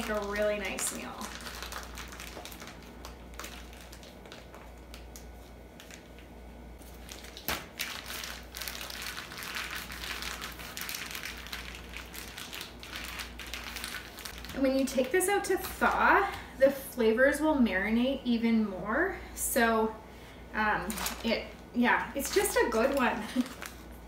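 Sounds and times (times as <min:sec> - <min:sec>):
plastic bag crinkling: 0:00.0 - 0:16.0, 0:20.8 - 0:24.0.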